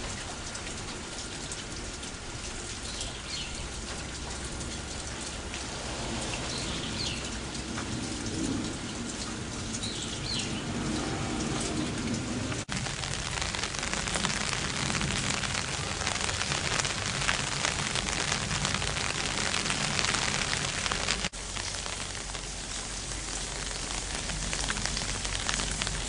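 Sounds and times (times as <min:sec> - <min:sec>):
steady rain falling: 0:00.0 - 0:26.0.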